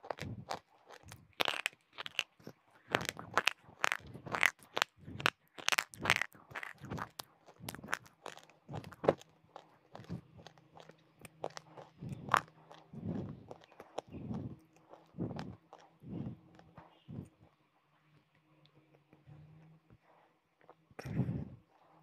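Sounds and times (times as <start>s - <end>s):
crunching chalky stick: 0.0s - 17.6s.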